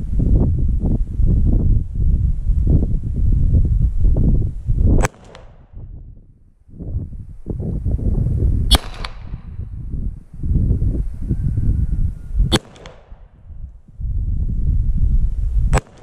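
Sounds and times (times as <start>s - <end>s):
low rumbling noise: 0.0s - 15.8s
pistol shots with echo: 5.0s - 5.6s, 8.7s - 9.3s, 12.5s - 13.3s.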